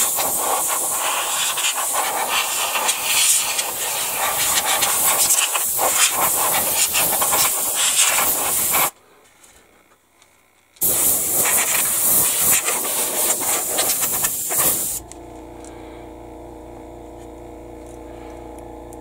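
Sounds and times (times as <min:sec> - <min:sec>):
airbrush blowing air hiss: 0:00.0 - 0:09.0, 0:10.8 - 0:15.1.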